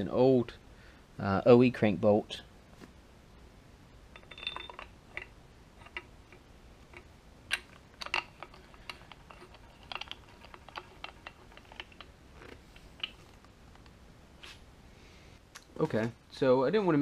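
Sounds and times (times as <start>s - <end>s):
metallic clicks of bolt and washer: 4.2s - 12.1s.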